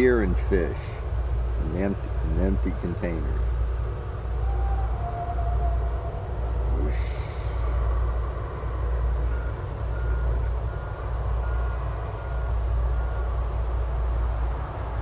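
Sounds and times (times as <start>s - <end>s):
low rumble: 1.0s - 13.5s
vehicle backup alarm beeping: 4.4s - 13.6s.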